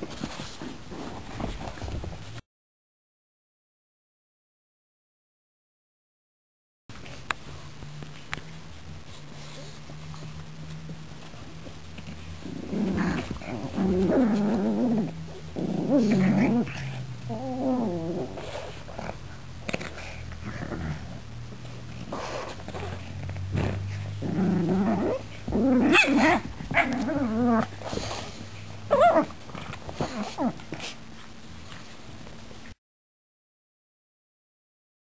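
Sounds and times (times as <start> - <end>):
dogs growling in play: 12.0 - 31.0.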